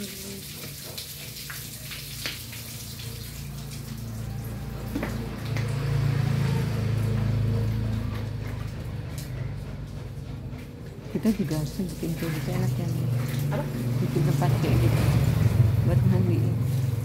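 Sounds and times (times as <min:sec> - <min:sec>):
water splashing and pouring: 0:00.0 - 0:17.0.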